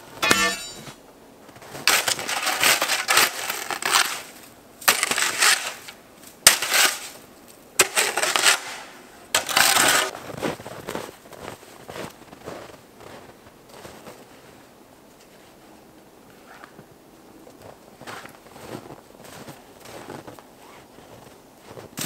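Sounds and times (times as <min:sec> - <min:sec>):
snow shovel scraping snow: 0:01.8 - 0:07.2, 0:07.8 - 0:11.0.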